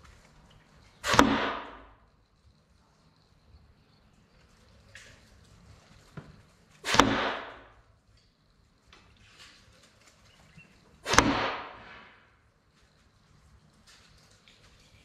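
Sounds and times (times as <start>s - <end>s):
dart striking wooden board: 1.0s - 1.8s, 6.8s - 7.6s, 11.0s - 12.2s.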